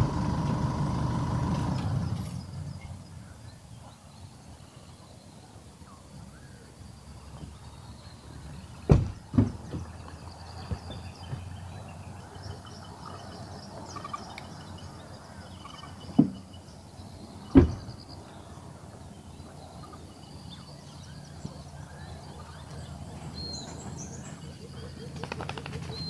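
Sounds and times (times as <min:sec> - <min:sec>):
steady low background noise: 0:00.0 - 0:26.0
dull thumps: 0:08.9 - 0:10.0, 0:17.5 - 0:17.9
faint high bird chirps: 0:09.7 - 0:26.0.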